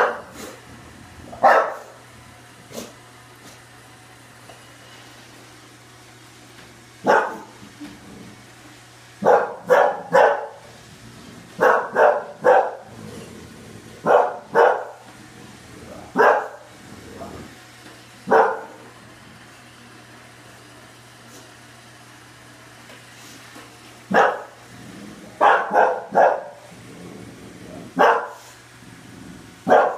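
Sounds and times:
dog barking: 0.0s - 0.3s, 1.4s - 2.0s, 7.0s - 7.5s, 9.2s - 10.6s, 11.6s - 12.9s, 14.0s - 15.0s, 16.2s - 16.7s, 18.3s - 18.8s, 24.1s - 24.5s, 25.4s - 26.6s, 28.0s - 28.5s, 29.7s - 29.9s
steady low hum: 6.5s - 21.5s, 24.1s - 29.9s.

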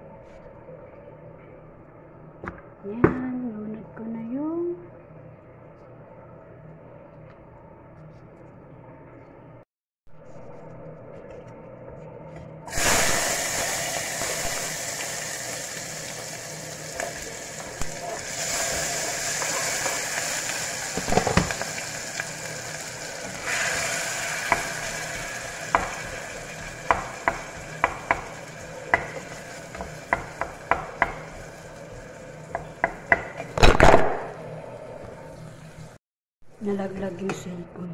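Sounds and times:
onion sizzling in a pot: 12.7s - 33.6s
wooden spoon tapping a pot: 25.7s - 26.1s, 26.8s - 31.4s, 32.5s - 33.5s.

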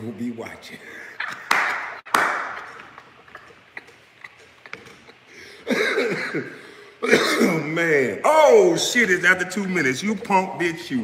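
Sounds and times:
man laughing: 2.6s - 6.7s.

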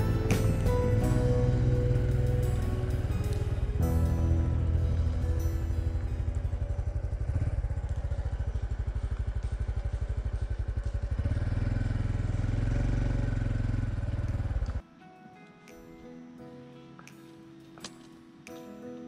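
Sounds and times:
motorcycle engine running: 0.0s - 14.8s.

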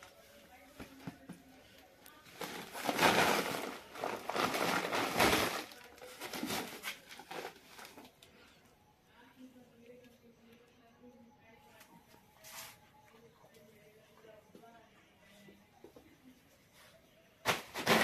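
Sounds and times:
plastic sacks rustling and crinkling: 2.2s - 8.2s, 17.5s - 18.0s.

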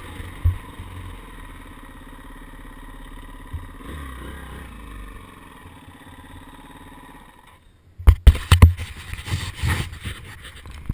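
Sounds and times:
dirt bike engine: 0.0s - 10.6s.

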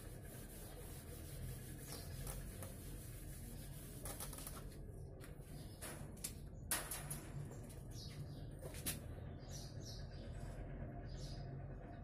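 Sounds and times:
duster wiping whiteboard: 0.0s - 4.2s
low room hum: 0.0s - 12.0s.

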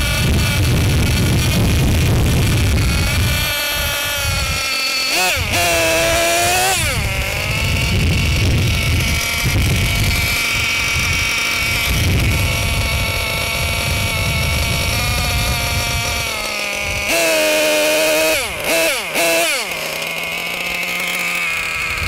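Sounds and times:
wind rumbling on microphone: 0.0s - 4.7s, 5.3s - 17.1s
small gasoline engine idling: 0.0s - 22.0s.

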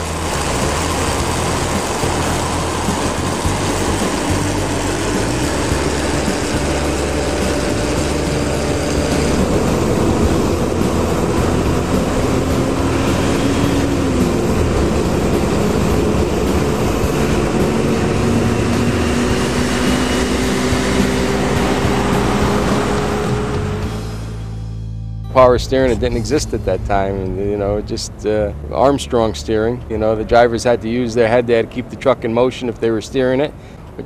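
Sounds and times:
tyre and road rumble: 0.0s - 24.4s
truck engines running: 0.0s - 34.0s.

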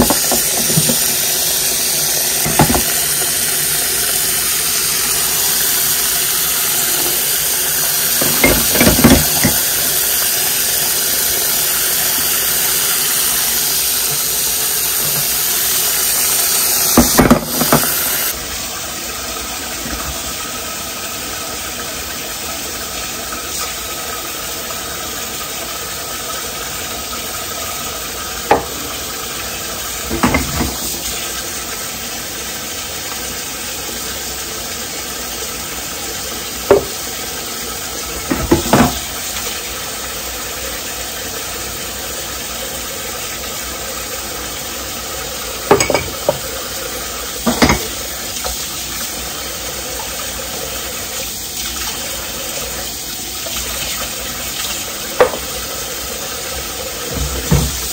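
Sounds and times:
dishes and cutlery clinking: 8.2s - 9.7s, 45.7s - 46.4s.

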